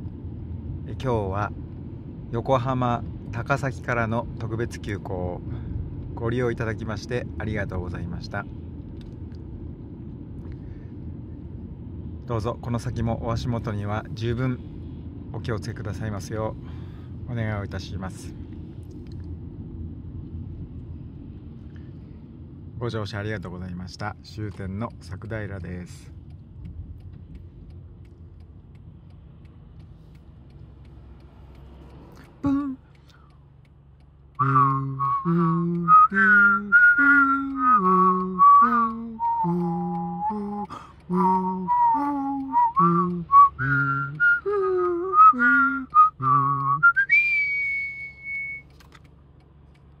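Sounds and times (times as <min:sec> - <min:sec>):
engine and road rumble: 0:00.0 - 0:50.0
faint light ticks: 0:18.4 - 0:19.4, 0:24.4 - 0:36.1, 0:36.8 - 0:43.4, 0:44.1 - 0:50.0
man voicing notes: 0:32.4 - 0:32.9, 0:34.4 - 0:46.9
man whistling a tune: 0:34.4 - 0:48.7.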